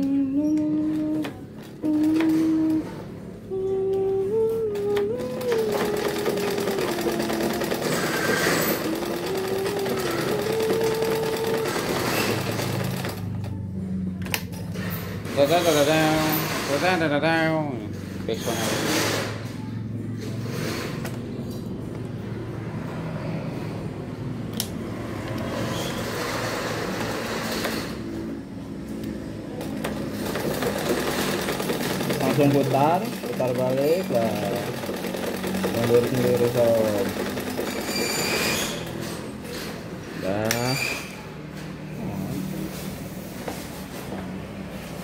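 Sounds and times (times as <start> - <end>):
sewing machine ticking clatter: 5.3 - 13.3, 29.8 - 38.4.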